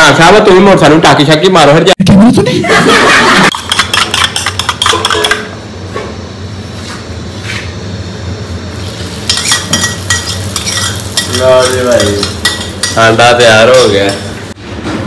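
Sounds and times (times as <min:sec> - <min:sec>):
food sizzling in a pan: 0:08.6 - 0:14.6
utensil stirring: 0:08.9 - 0:14.5.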